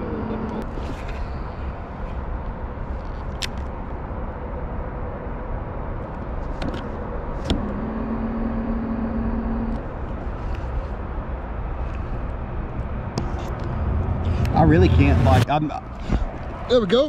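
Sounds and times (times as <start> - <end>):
small motor humming: 7.5 - 9.8.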